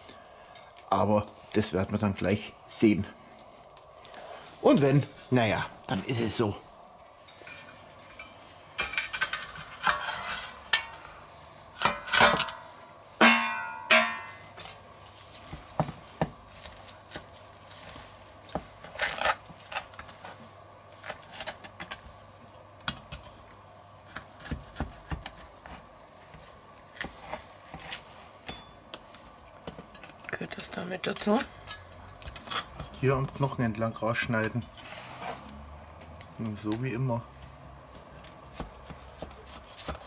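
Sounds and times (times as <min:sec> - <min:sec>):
knife and fork scraping a metal platter: 0:07.4 - 0:11.0, 0:30.6 - 0:32.9
ringing metallic clanks: 0:13.2 - 0:14.4.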